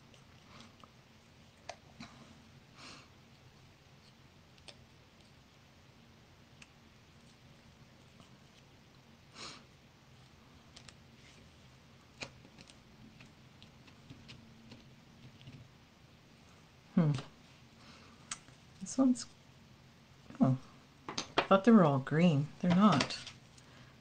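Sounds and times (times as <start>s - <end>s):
faint low hum: 0.0s - 24.0s
paper handling clicks and taps: 22.6s - 23.4s.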